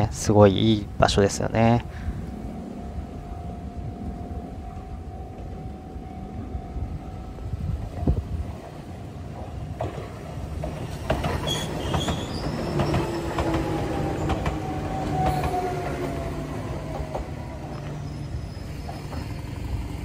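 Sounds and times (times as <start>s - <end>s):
steady low rumble: 0.0s - 10.9s
train wheels clicking over rail joints: 7.8s - 20.0s
train whine falling in pitch: 11.1s - 20.0s.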